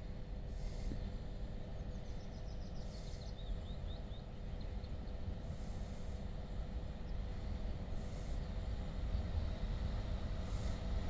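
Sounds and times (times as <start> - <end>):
distant freight train hum: 0.0 - 11.0
low steady rumble: 0.0 - 11.0
small bird chirping: 1.8 - 5.3.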